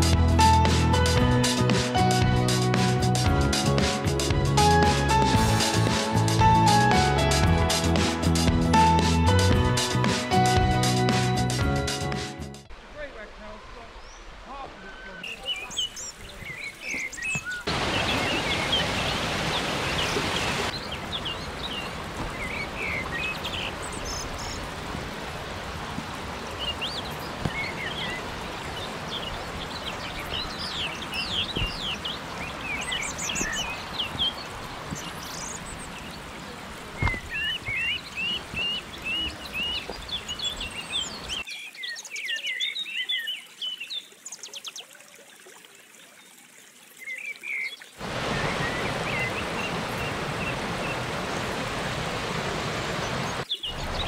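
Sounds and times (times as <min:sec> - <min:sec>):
rushing stream: 0:00.0 - 0:54.0
birds singing and calling: 0:13.9 - 0:24.8, 0:26.4 - 0:45.0, 0:46.9 - 0:54.0.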